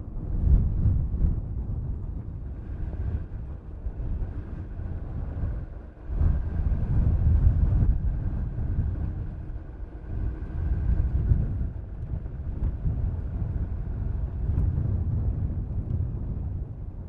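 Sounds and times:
car road and wind noise: 0.0s - 17.0s.

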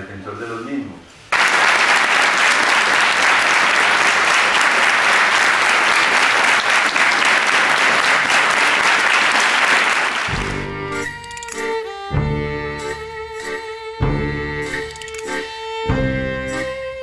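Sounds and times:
audience applauding: 1.3s - 10.7s.

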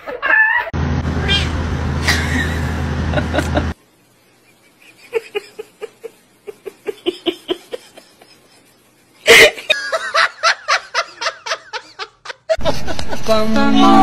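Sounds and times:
loud burst of laughter: 2.0s - 3.8s
person giggling: 2.0s - 3.8s, 4.5s - 13.4s.

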